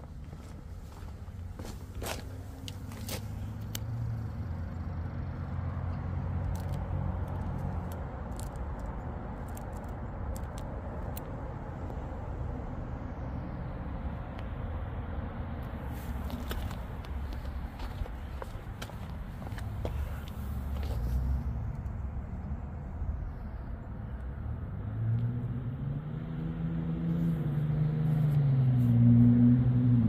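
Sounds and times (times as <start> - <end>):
light engine ticks: 3.6 - 4.3
car engine idling: 16.0 - 24.2.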